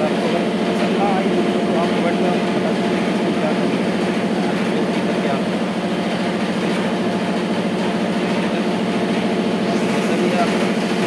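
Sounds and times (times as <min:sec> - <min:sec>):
factory machinery droning: 0:00.0 - 0:11.0.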